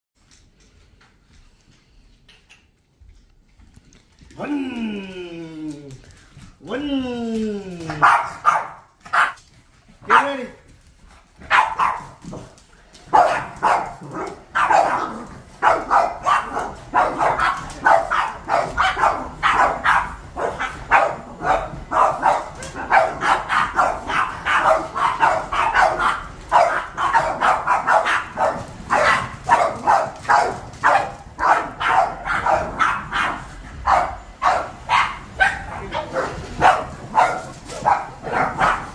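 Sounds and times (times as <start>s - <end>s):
dogs barking: 7.9s - 9.4s, 10.0s - 10.5s, 11.4s - 12.5s, 13.1s - 38.9s.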